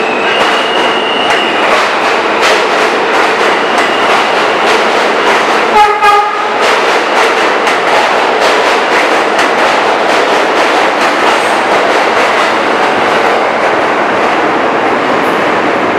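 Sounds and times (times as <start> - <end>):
subway train rumbling: 0.0 - 15.9
train horn blast: 5.7 - 6.6.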